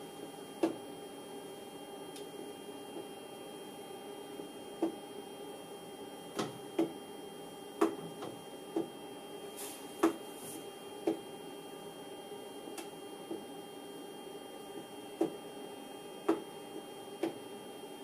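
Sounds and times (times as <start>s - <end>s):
steady electrical hum: 0.0s - 18.0s
hiss of air: 9.6s - 10.0s.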